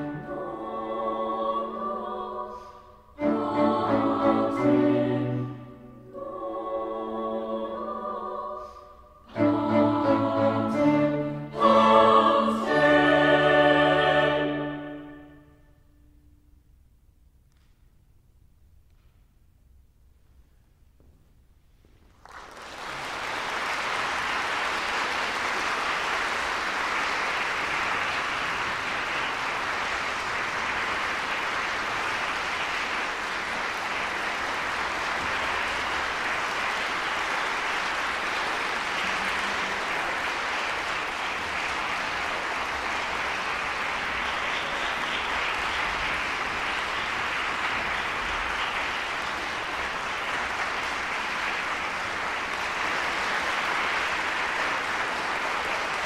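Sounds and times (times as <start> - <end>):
audience applause: 22.1 - 56.0.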